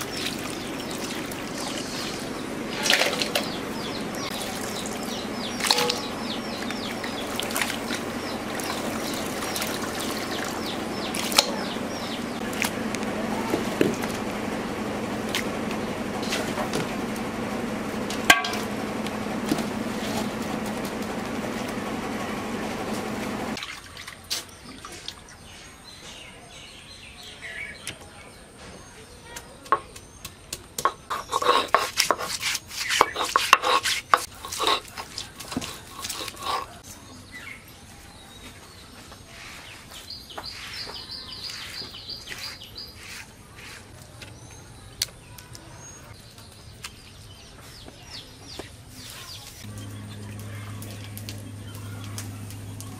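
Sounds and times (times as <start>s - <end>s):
bird chirping: 0.0s - 12.5s, 35.2s - 52.9s.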